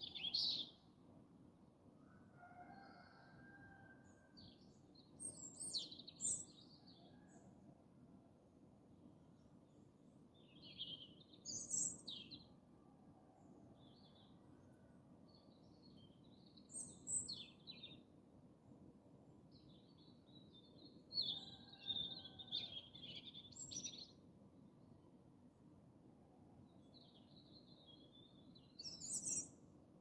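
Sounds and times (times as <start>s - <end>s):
robin singing: 28.8s - 29.5s.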